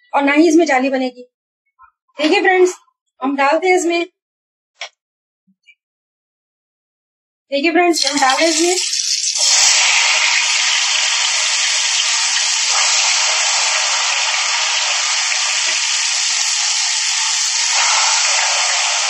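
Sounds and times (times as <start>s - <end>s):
batter sizzling in hot oil: 8.0s - 19.0s.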